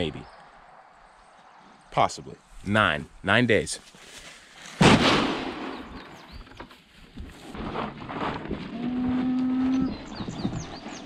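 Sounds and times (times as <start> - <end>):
loud bang: 4.8 - 6.2.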